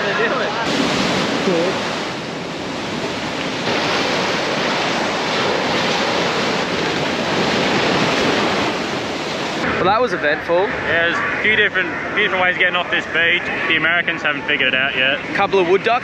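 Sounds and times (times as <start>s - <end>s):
waves breaking on sand: 0.0s - 10.0s.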